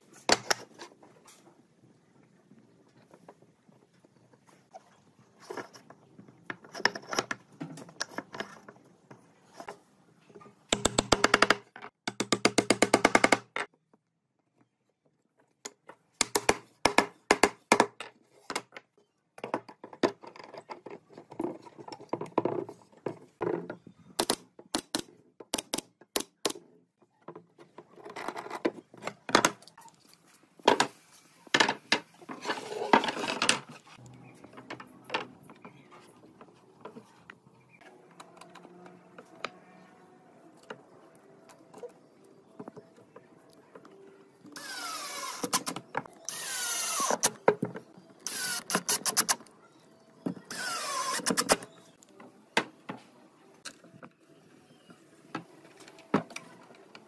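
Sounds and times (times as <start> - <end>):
wood and tools knocking: 10.7 - 13.8.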